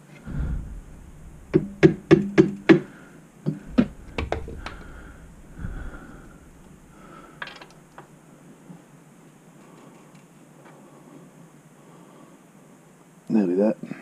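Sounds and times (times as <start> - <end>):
sharp metal knocks: 0.3 - 8.2.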